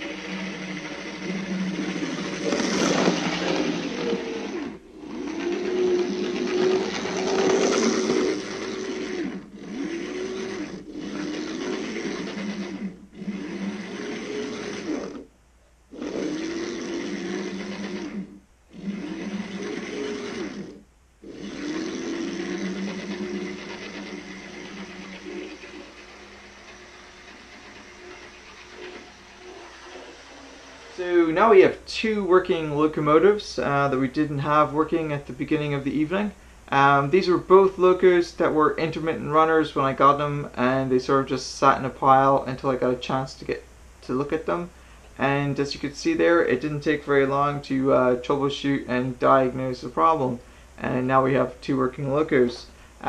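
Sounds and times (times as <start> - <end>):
model train motor whining: 0.0 - 15.3, 15.9 - 31.8.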